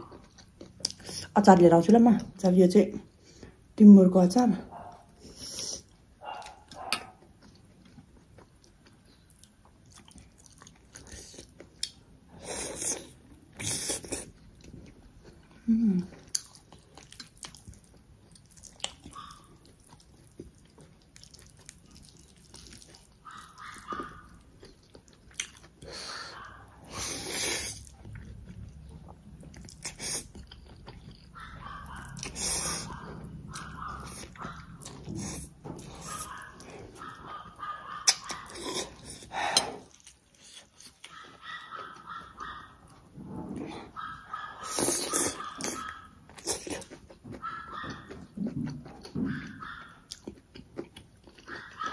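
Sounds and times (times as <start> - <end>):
person chewing: 0.0 - 1.4, 4.9 - 51.9
wet mouth clicks: 38.0 - 38.5.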